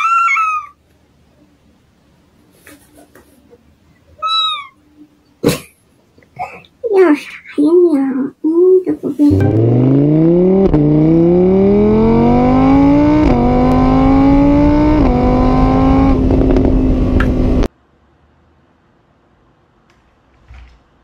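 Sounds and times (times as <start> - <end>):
motor scooter engine revving: 9.3 - 17.7.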